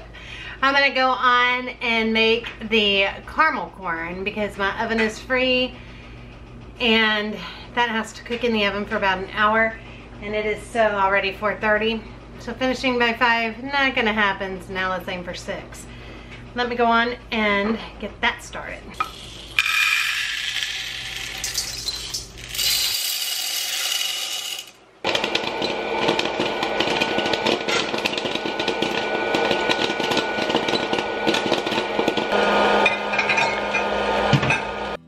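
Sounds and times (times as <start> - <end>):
popcorn popping: 19.0 - 34.5
popper motor hum: 23.6 - 35.0.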